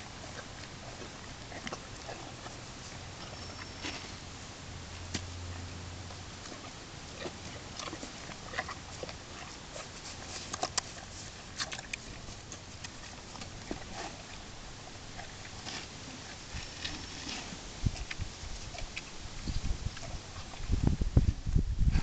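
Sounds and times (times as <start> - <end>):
horse chewing and crunching: 0.0 - 21.6
muzzle working in rubber tub: 4.9 - 21.3.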